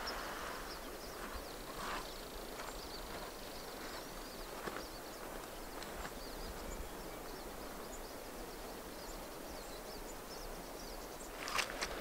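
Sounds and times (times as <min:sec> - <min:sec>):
distant birds chirping: 0:00.0 - 0:12.0.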